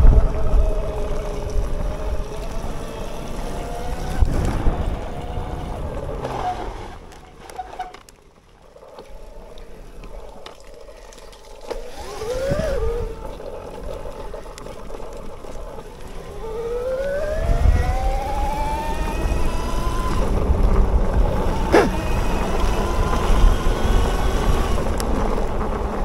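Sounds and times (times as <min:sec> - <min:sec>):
electric motor whining: 0:09.1 - 0:26.0
faint clicks: 0:12.6 - 0:16.3.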